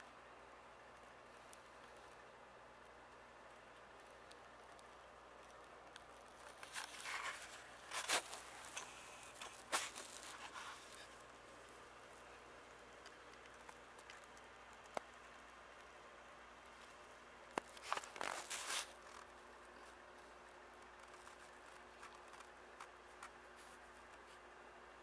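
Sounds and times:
leaves rustling and crinkling: 6.2s - 12.3s, 17.6s - 20.3s.

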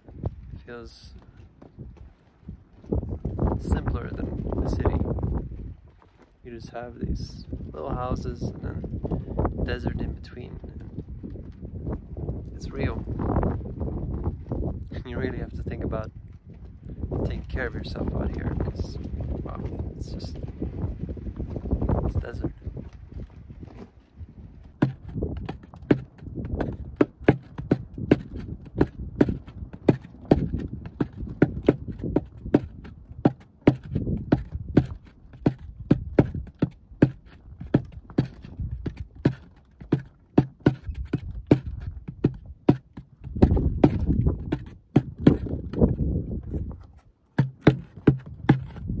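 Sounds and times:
hands drumming on plastic bottle: 24.8s - 46.0s, 47.4s - 49.0s.

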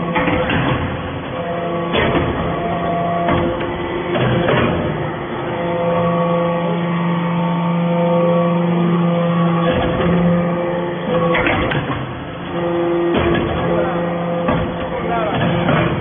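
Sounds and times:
hydraulic unit humming: 0.0s - 16.0s
press clunks: 0.1s - 5.0s, 11.1s - 16.0s.

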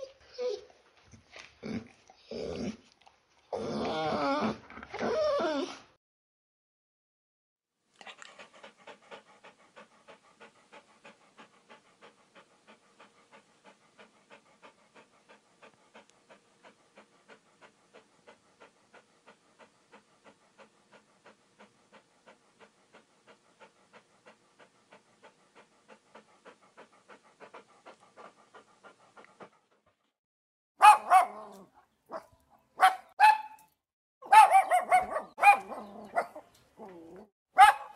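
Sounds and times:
dog panting: 8.0s - 30.2s, 34.3s - 37.9s.

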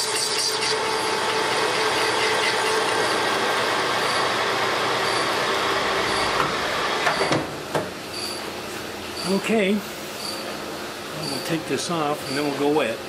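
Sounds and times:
metal lathe humming: 0.0s - 7.3s.

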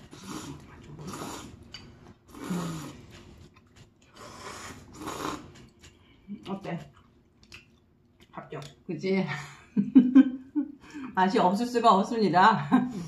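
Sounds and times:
person slurping noodles: 0.0s - 1.7s, 2.3s - 3.5s, 4.1s - 5.7s.

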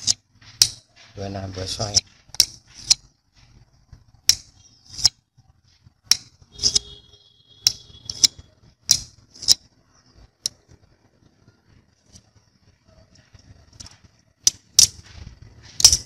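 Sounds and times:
steel knocking against magnet: 0.0s - 1.0s, 15.7s - 16.0s.

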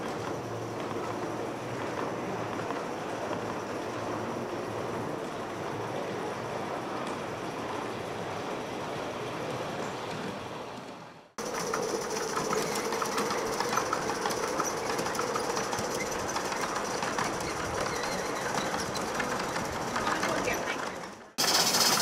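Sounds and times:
wheels clicking over rail joints: 0.0s - 22.0s
model train running: 11.4s - 22.0s
steady locomotive tone: 11.4s - 22.0s.

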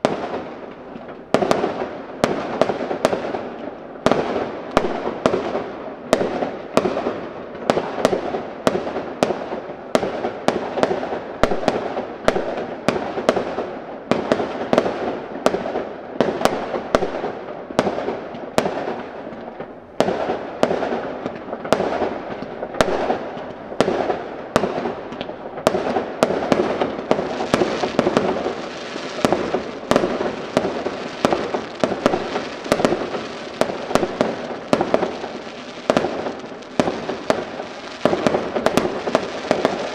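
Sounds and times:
firework crackling: 0.0s - 39.9s
firework shells bursting: 24.8s - 39.9s.

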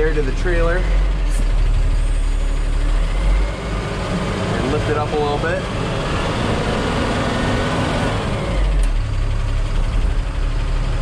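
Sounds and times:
diesel truck engine rumble: 0.0s - 11.0s.

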